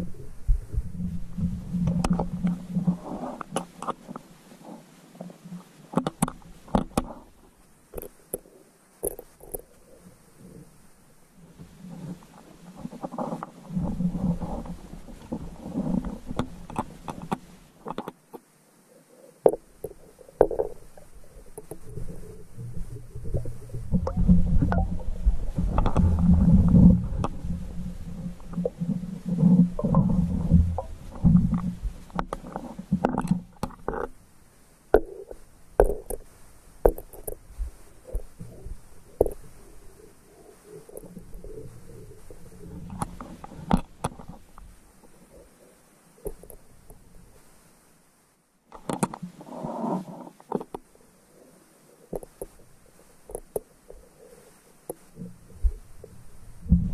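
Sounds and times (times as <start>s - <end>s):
muffled underwater rumble: 0.0s - 7.6s, 8.2s - 17.8s, 19.1s - 47.5s, 49.3s - 56.9s
sharp clicks and knocks: 5.9s - 7.3s, 12.3s - 18.4s, 28.2s - 34.1s, 34.9s - 37.4s, 38.1s - 39.6s, 40.8s - 44.7s, 48.7s - 49.3s, 52.1s - 52.6s, 53.3s - 54.1s.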